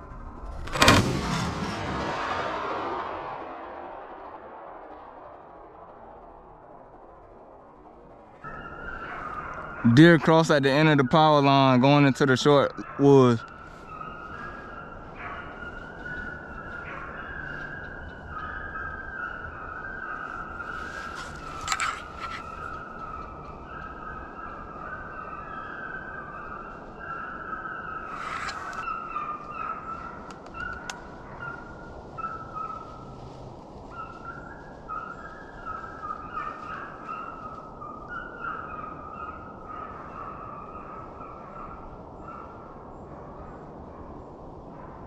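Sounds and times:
hounds baying: 8.5s - 45.0s.

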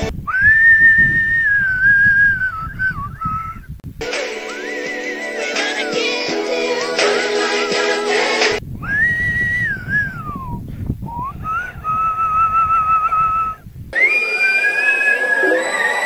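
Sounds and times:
whistle-register singing: 0.3s - 3.6s, 8.8s - 10.5s, 11.1s - 16.0s
low rumble: 8.6s - 14.0s.

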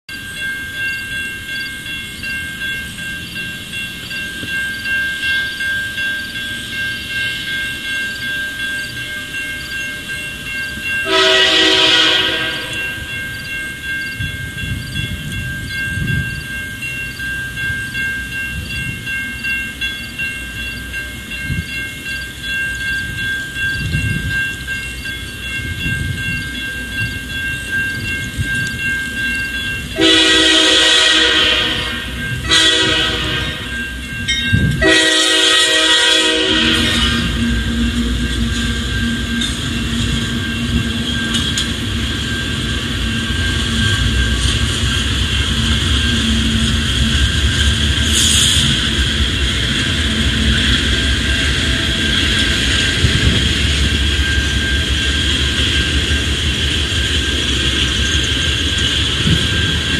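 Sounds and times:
grade-crossing bell ringing: 0.1s - 59.9s
low rumble of train: 0.1s - 59.9s
locomotive air horn blast: 11.0s - 12.8s, 30.0s - 33.7s, 34.8s - 37.4s.

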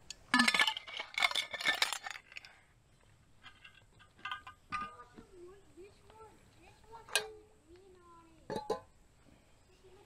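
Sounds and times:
metal cookware clanking: 0.3s - 2.4s, 3.5s - 5.2s, 7.0s - 7.4s.

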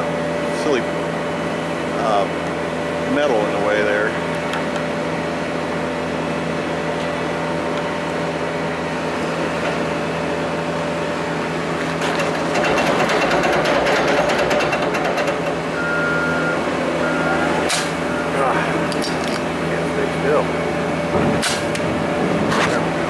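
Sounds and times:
machinery humming: 0.0s - 23.0s
rapid rattle of clicks: 12.0s - 15.6s
steady high tone: 15.7s - 21.0s.

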